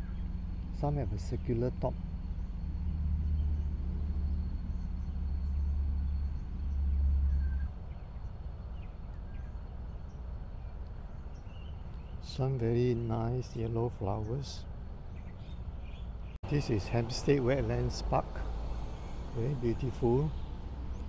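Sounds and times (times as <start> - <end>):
faint bird chirps: 1.9 - 13.2.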